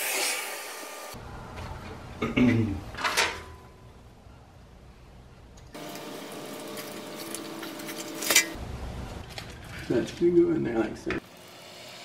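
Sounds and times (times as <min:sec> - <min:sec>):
wires rustling and clicking: 0:06.6 - 0:11.2.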